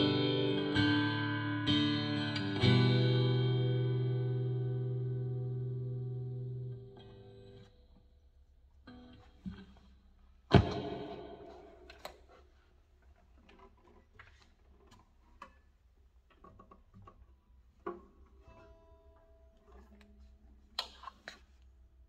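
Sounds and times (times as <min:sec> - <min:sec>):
guitar handling noise: 0:08.9 - 0:21.7
sharp knock on guitar: 0:10.5 - 0:12.0
open guitar strings ringing: 0:10.5 - 0:12.2.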